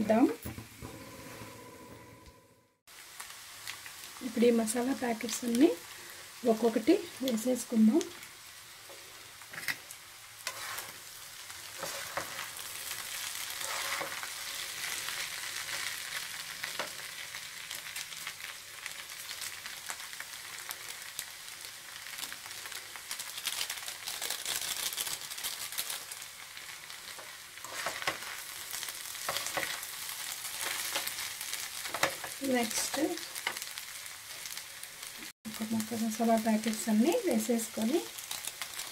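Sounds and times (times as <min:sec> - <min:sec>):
food sizzling in a frying pan: 0:00.0 - 0:02.2, 0:02.9 - 0:38.9
metal fork scraping a pan: 0:10.4 - 0:11.0, 0:11.8 - 0:12.5, 0:13.6 - 0:14.3, 0:27.6 - 0:28.3, 0:29.2 - 0:29.8.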